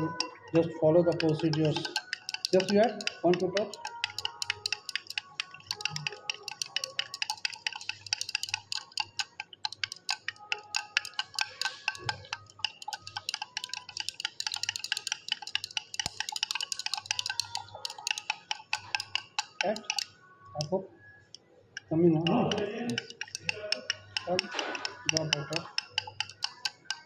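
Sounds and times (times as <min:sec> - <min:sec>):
glass rod clinking in beaker: 0:00.0 - 0:20.1.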